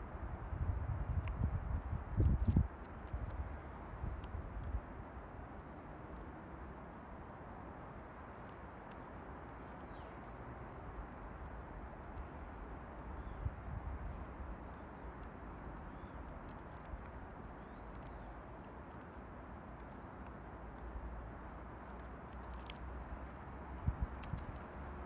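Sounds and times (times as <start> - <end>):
outdoor background noise: 0.0 - 25.0
distant bird chirps: 17.6 - 18.4.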